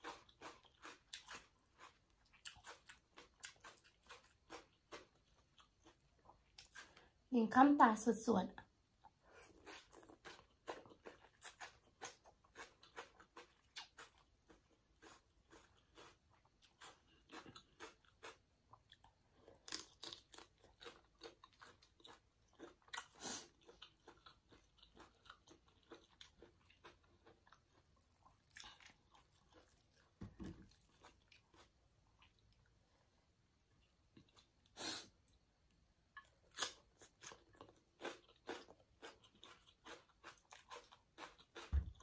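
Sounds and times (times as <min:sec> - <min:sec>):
chewing with wet crunches: 0:00.0 - 0:07.0, 0:08.9 - 0:32.8, 0:36.1 - 0:42.0.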